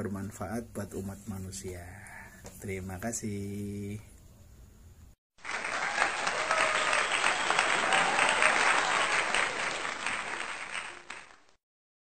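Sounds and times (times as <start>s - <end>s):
crowd applause: 5.4s - 11.6s.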